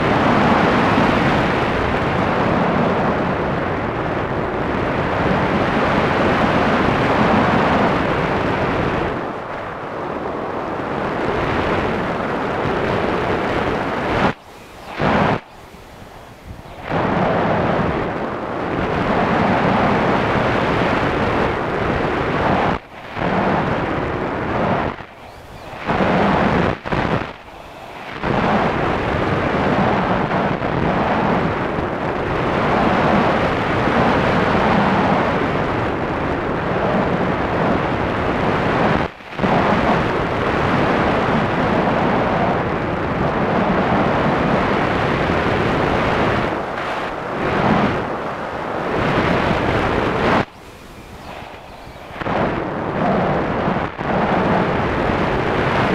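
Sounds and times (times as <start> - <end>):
wind buffeting microphone: 0.0 - 55.9.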